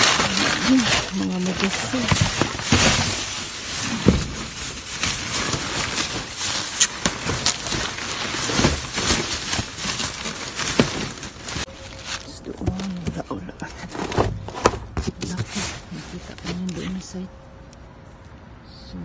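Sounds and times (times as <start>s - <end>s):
cardboard box shifted: 0.0s - 17.0s
knocks and scrapes: 0.0s - 17.1s
plastic bags rustling: 0.0s - 17.2s.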